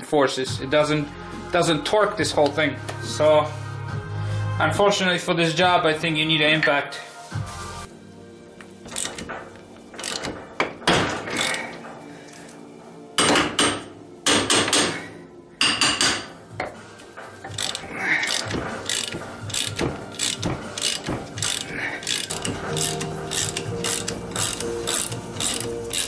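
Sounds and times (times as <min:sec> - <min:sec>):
ratchet clicks: 0:08.9 - 0:09.3, 0:10.0 - 0:10.4, 0:17.5 - 0:26.0
rasping metallic strokes: 0:17.5 - 0:26.0.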